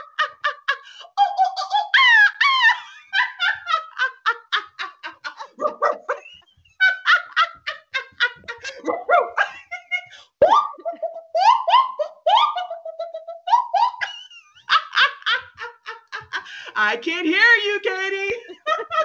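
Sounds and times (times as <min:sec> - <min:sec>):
people laughing: 0:00.0 - 0:16.8, 0:17.7 - 0:19.0.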